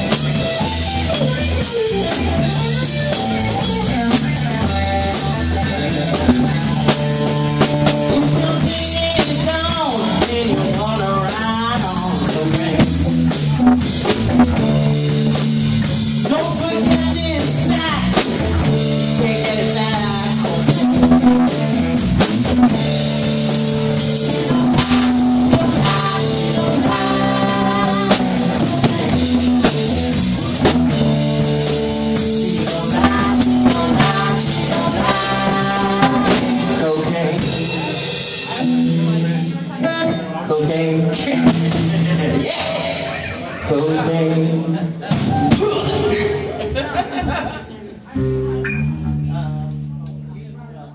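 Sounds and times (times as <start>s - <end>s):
drum kit: 0.0s - 40.4s, 41.0s - 47.5s
electric guitar: 0.0s - 47.4s, 48.1s - 50.4s
woman singing: 8.0s - 13.1s, 16.2s - 18.2s, 19.1s - 21.1s, 24.3s - 30.0s, 32.4s - 37.9s.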